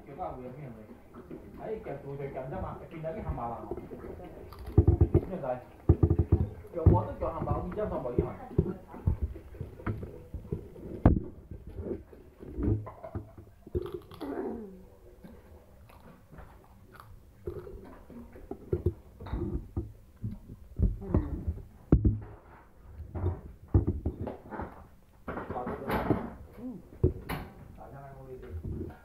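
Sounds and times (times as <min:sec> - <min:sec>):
person chewing: 0:03.8 - 0:05.1, 0:13.5 - 0:21.6.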